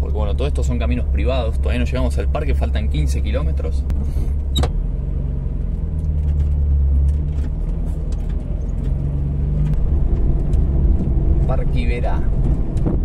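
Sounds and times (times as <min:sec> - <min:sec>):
van engine rumbling: 0:00.0 - 0:13.0.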